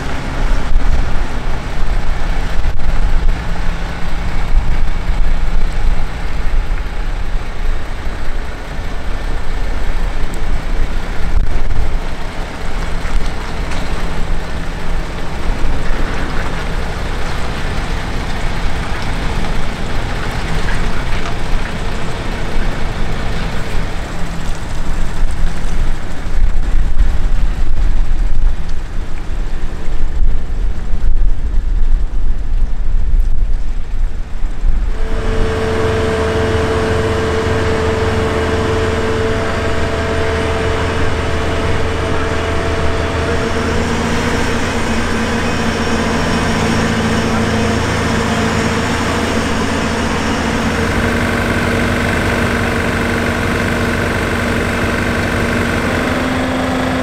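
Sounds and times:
diesel engine rumbling: 0.0s - 57.0s
steady humming tone: 34.1s - 57.0s.

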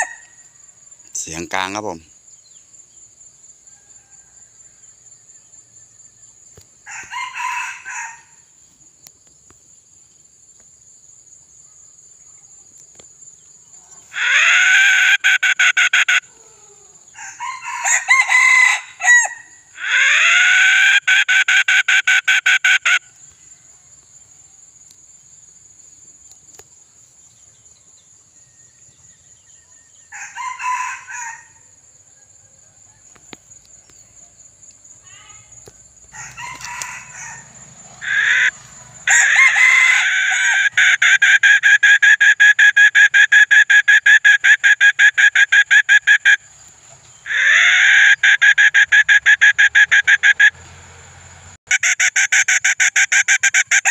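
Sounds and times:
rooster crowing: 0.0s - 0.4s, 3.6s - 6.1s, 6.8s - 8.5s, 14.0s - 21.5s, 29.9s - 33.6s, 36.0s - 43.5s, 47.2s - 50.5s
high insect drone: 0.0s - 20.6s, 22.3s - 51.4s.

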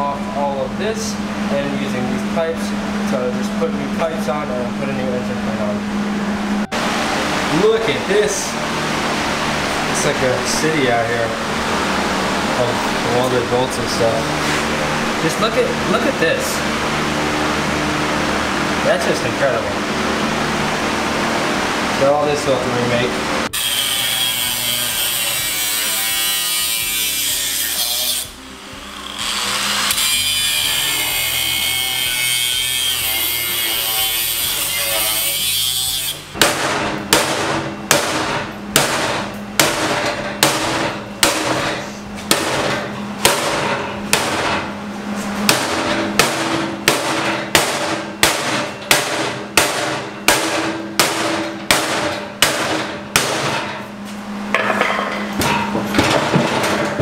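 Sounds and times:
angle grinder cutting steel: 23.4s - 36.4s.

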